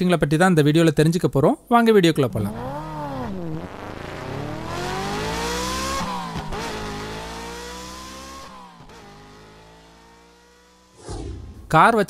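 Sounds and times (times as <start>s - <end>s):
car engine revving: 2.2s - 11.7s.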